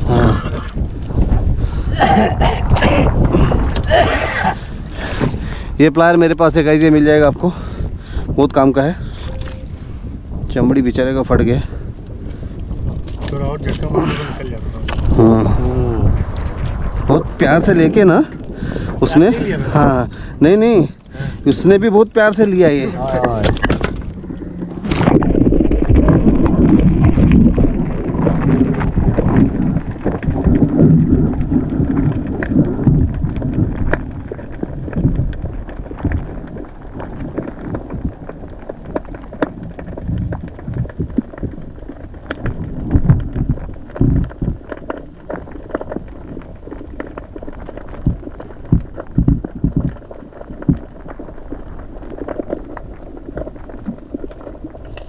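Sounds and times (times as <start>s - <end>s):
sharp clicks and crackles: 0.0s - 55.0s
underwater low rumble: 0.0s - 55.0s
swirling underwater water noise: 24.2s - 33.9s.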